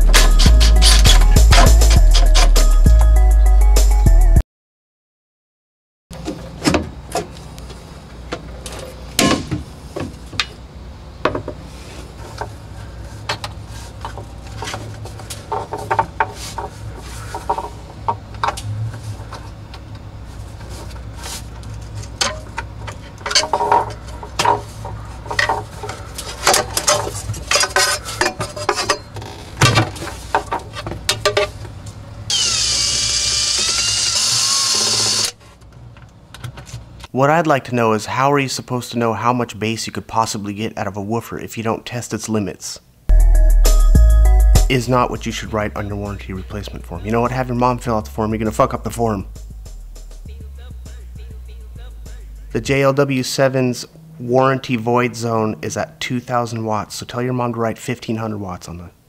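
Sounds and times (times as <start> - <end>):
steady low hum: 6.5 - 33.1, 43.0 - 58.1
knocks and scrapes against wood: 13.2 - 19.6, 20.4 - 31.5
cordless drill whining: 32.3 - 35.4.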